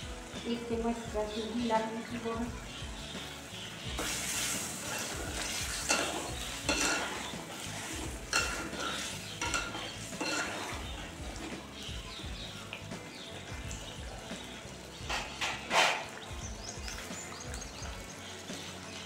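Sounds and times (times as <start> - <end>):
spices sizzling in hot oil: 0.0 - 19.0
metal spatula scraping pan: 4.0 - 11.0, 15.0 - 16.2.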